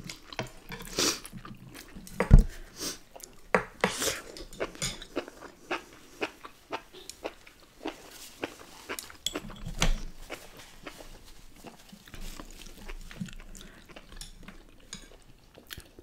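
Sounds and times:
chopsticks clattering on dishes: 0:03.6 - 0:05.1, 0:09.2 - 0:09.8.

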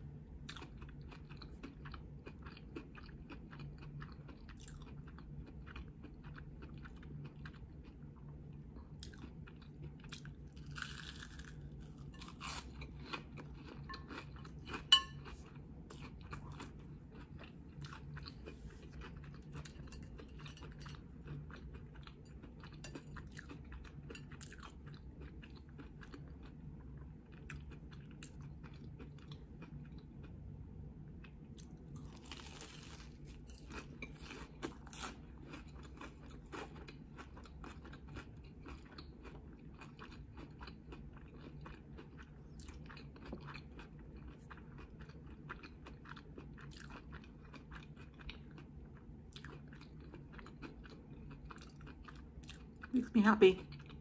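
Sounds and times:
faint low hum: 0:00.0 - 0:54.0
crunchy chewing: 0:00.5 - 0:08.0, 0:08.8 - 0:30.3, 0:31.6 - 0:52.9.

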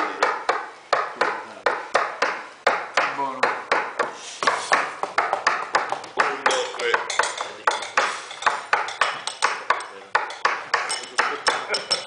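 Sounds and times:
ringing taps on glasses and cutlery: 0:05.8 - 0:12.0.

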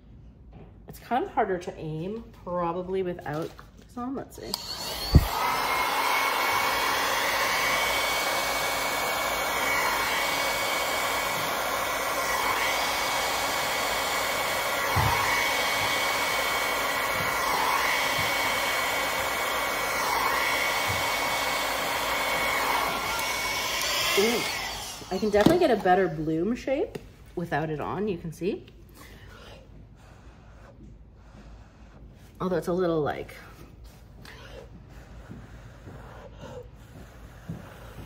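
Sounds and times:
hair dryer running: 0:04.3 - 0:26.8, 0:34.2 - 0:38.0.

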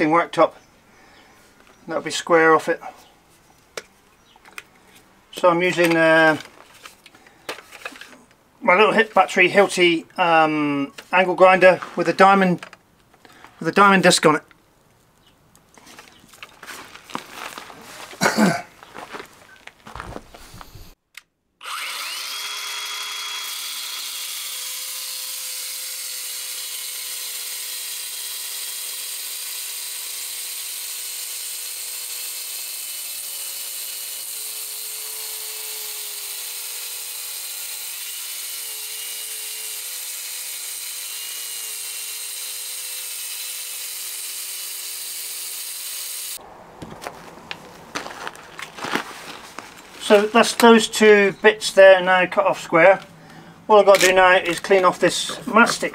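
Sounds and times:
angle grinder cutting stone: 0:21.6 - 0:46.4.

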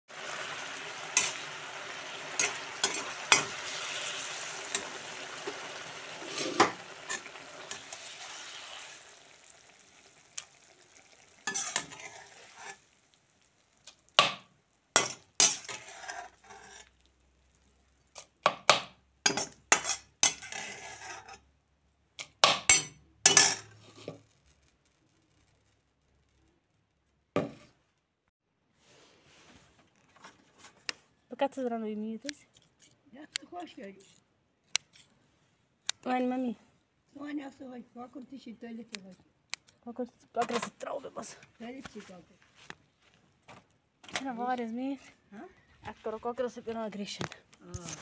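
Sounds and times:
onions sizzling in oil: 0:00.1 - 0:18.4
spoon scraping and knocking pan: 0:01.0 - 0:04.0, 0:04.7 - 0:08.2, 0:11.4 - 0:12.8, 0:14.2 - 0:16.9, 0:18.1 - 0:21.4, 0:22.4 - 0:24.2.

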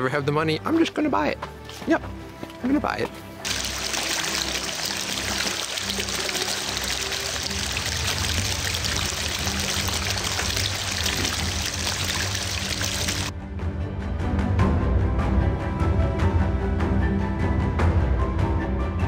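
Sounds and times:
background music: 0:00.0 - 0:19.0
stream rushing over stones: 0:03.4 - 0:13.3.

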